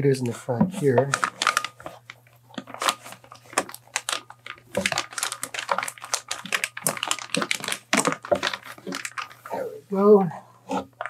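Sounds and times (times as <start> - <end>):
plastic bag crinkling: 0.8 - 9.6.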